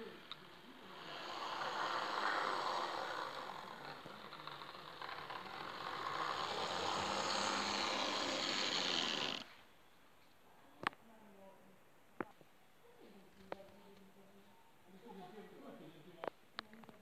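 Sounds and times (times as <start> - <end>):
model train motor whirring: 0.0 - 9.6.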